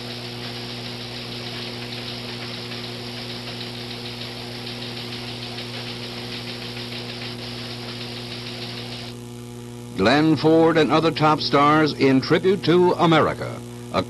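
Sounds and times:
teletype machines clattering: 0.0s - 9.1s
low electrical hum: 0.0s - 14.0s.

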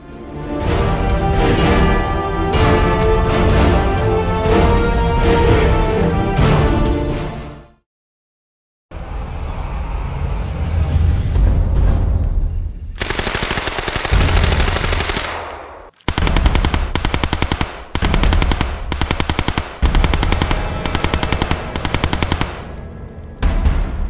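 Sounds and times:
music: 0.0s - 7.8s, 9.4s - 13.0s, 19.7s - 24.0s
rapid machine-gun fire: 13.0s - 22.8s.

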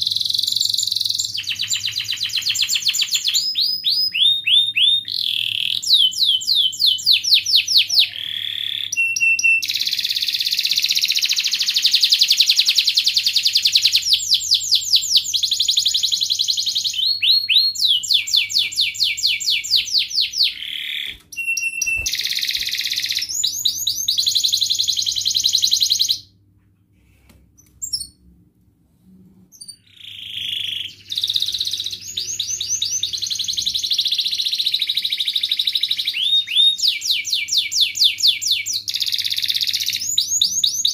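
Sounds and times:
canary singing trills: 0.0s - 26.3s, 29.5s - 40.9s.

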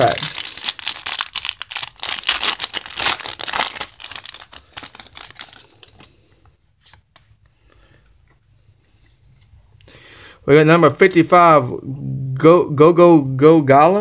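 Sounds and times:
foil wrapper crinkling and tearing: 0.0s - 6.2s.

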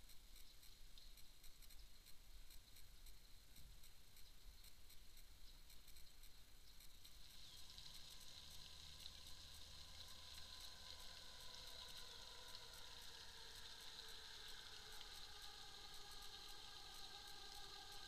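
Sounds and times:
steady high hiss: 0.0s - 18.0s.

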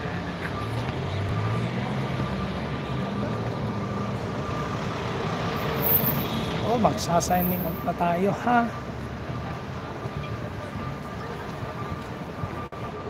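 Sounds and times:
street noise: 0.0s - 13.0s.

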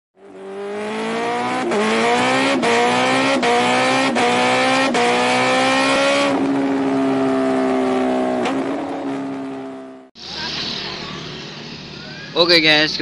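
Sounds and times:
engine accelerating through gears: 0.2s - 10.1s.

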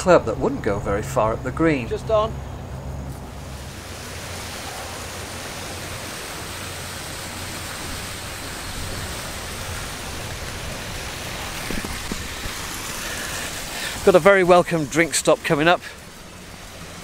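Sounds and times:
golf cart rumbling: 0.0s - 17.0s
wind on microphone: 7.7s - 13.0s.

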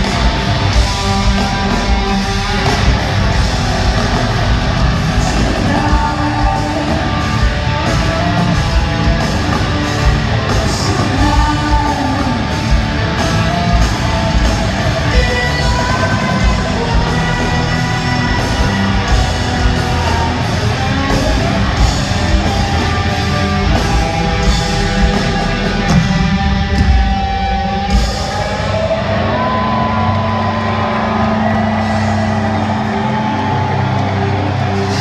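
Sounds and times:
distorted guitars: 0.0s - 35.0s
drums: 0.0s - 35.0s.

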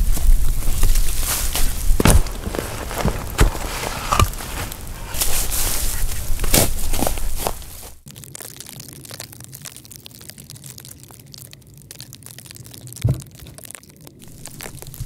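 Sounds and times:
dirt landing with a thud: 0.1s - 7.9s
shovel digging into soil: 1.2s - 7.7s.

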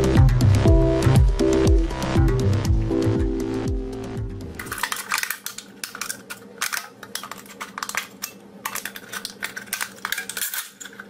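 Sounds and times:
scissors snipping metal can: 4.6s - 11.0s.

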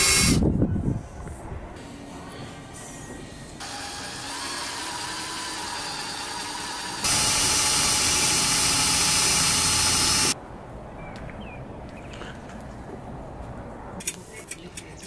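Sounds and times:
electric drill drilling into steel: 0.0s - 0.4s, 3.6s - 10.4s.

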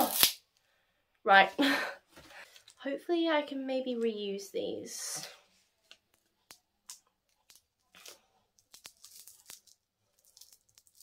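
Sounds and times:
adhesive strip peeling: 0.0s - 0.4s.

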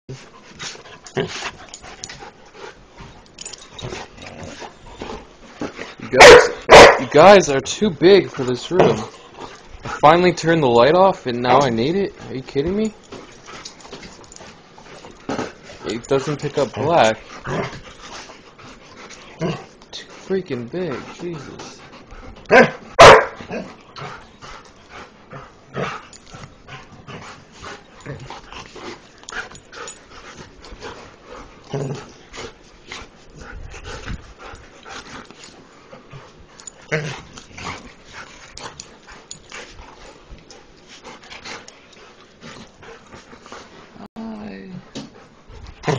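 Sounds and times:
dogs breathing and moving: 0.1s - 45.9s
dog barking: 6.2s - 7.1s, 22.5s - 23.4s.

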